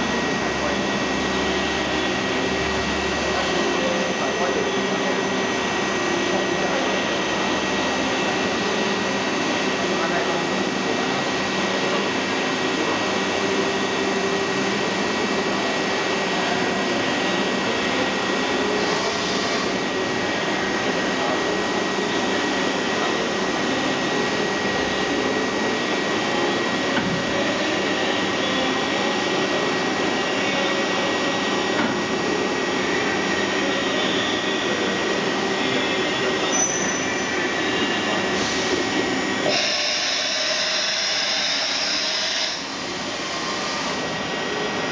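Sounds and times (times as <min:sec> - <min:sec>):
constant high tone: 0:33.4 - 0:38.2.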